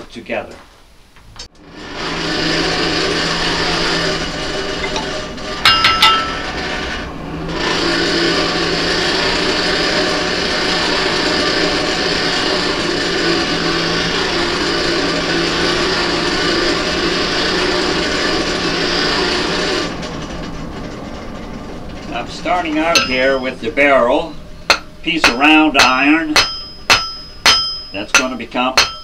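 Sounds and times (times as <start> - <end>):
forge blower humming: 1.5 - 29.0
hammer clanking on anvil: 4.8 - 6.6, 22.8 - 23.5, 24.7 - 29.0.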